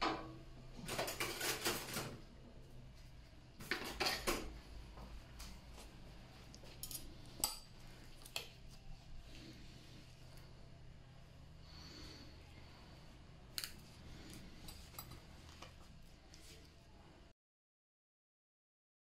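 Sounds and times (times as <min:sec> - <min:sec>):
metal instruments clinking: 0:06.6 - 0:07.7.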